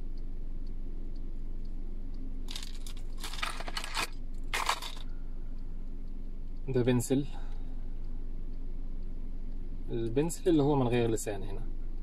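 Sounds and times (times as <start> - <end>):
low hum: 0.0 - 12.0
fishing tackle rustling and clinking: 2.5 - 5.0.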